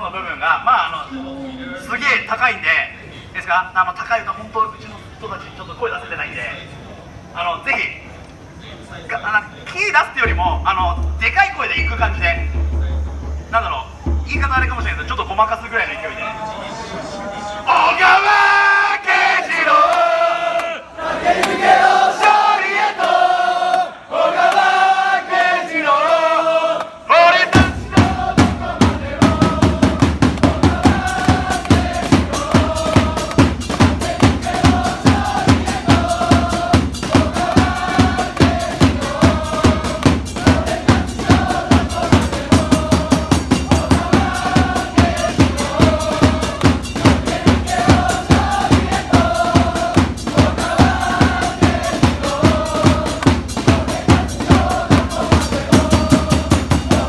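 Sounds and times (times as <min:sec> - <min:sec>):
bass drum beat: 0:10.2 - 0:15.2, 0:27.6 - 0:57.0
crowd chanting in unison: 0:16.2 - 0:57.0.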